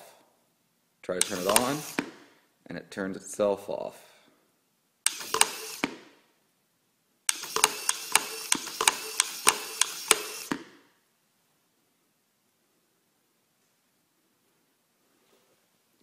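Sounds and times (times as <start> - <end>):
small servo whirring: 1.2 - 2.1, 5.1 - 5.9, 7.3 - 10.6
switch and lid clicking: 1.2 - 2.1, 7.3 - 10.6.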